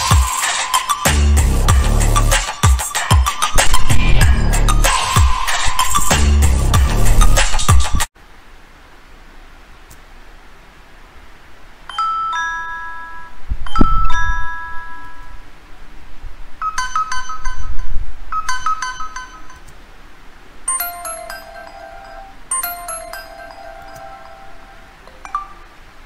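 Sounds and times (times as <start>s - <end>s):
electronic chimes and dings: 11.9s - 15.4s, 16.6s - 19.6s, 20.7s - 25.8s.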